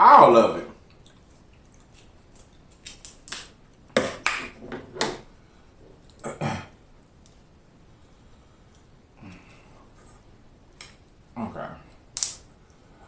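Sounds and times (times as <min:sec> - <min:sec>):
crab shells cracking: 0:00.9 - 0:04.5, 0:12.1 - 0:12.5.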